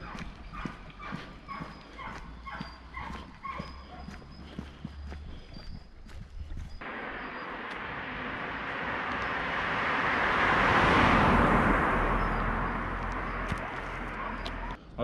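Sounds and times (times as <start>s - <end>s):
car passing on asphalt: 6.8s - 14.8s.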